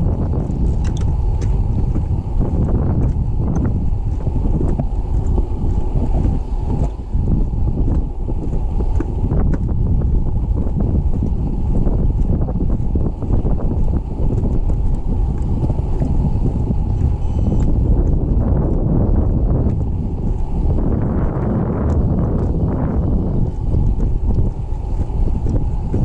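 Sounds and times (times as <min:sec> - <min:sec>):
footsteps on wooden boardwalk: 0:00.0 - 0:26.0
wind buffeting microphone: 0:00.0 - 0:26.0.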